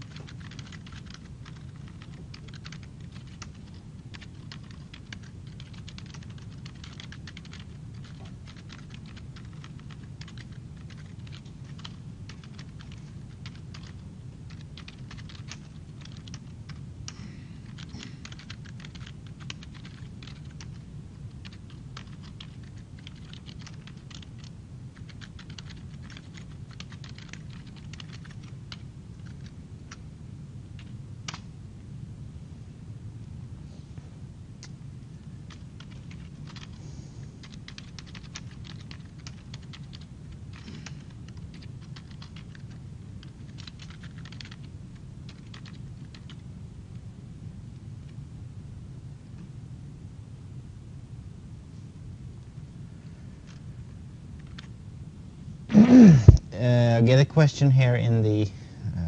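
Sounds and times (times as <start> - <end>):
keyboard typing: 0.0 - 16.8, 17.6 - 30.0, 30.8 - 31.4, 35.5 - 36.8, 37.4 - 44.7, 45.3 - 46.4, 54.4 - 54.7
steady low hum: 0.0 - 59.0.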